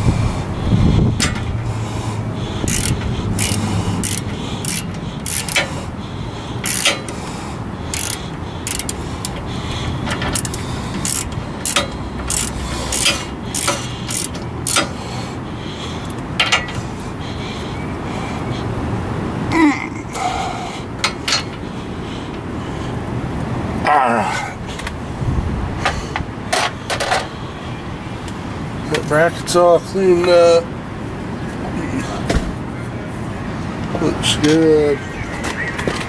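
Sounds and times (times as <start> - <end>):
hand ratchet clicking: 2.6 - 5.8, 6.6 - 7.2, 7.9 - 15.0.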